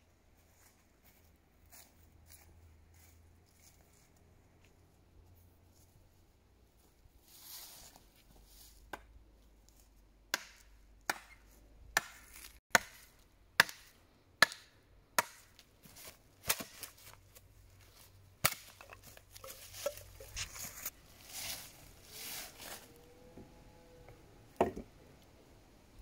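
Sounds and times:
blade chopping wooden branch: 10.3s - 11.4s, 12.0s - 15.6s, 16.4s - 17.0s, 18.4s - 20.7s.

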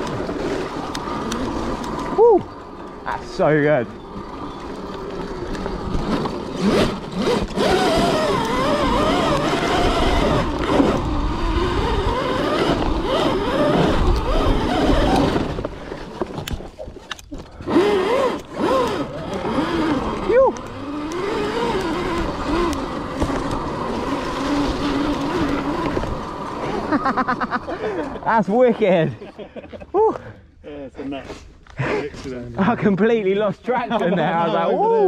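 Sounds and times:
electric motor whining: 0.0s - 27.0s
tyres rumbling on dirt: 0.0s - 29.2s.

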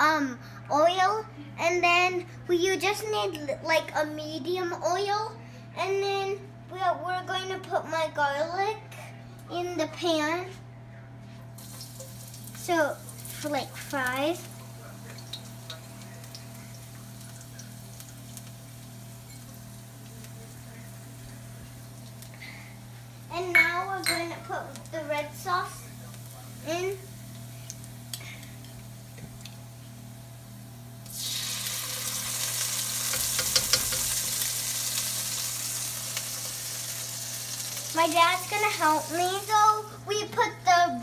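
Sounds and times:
gas burner low hum: 7.5s - 41.0s
oil sizzling in a wok: 11.6s - 40.0s.

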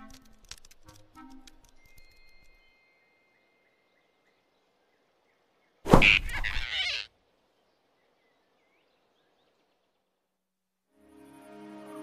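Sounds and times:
cartoon thunk: 5.9s - 6.5s.

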